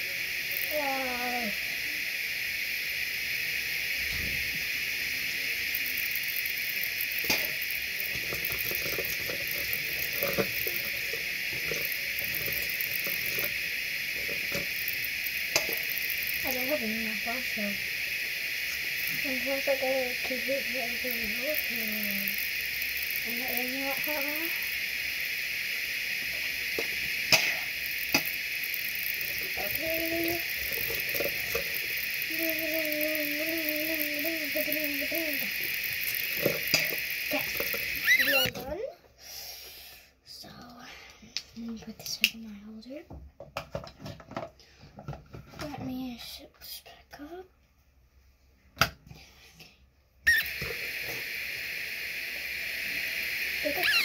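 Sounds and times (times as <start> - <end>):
steady background hiss: 0.0 - 42.9
person humming: 32.3 - 35.5.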